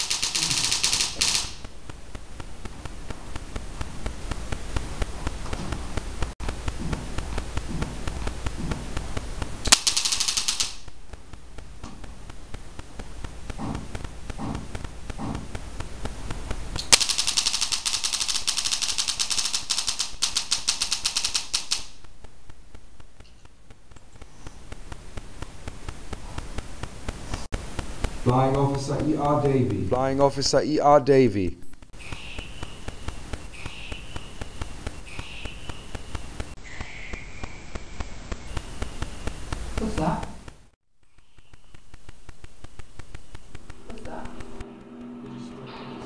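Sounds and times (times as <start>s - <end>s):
rapid crackling clicks: 0.0s - 45.1s
sharp click: 9.6s - 10.9s.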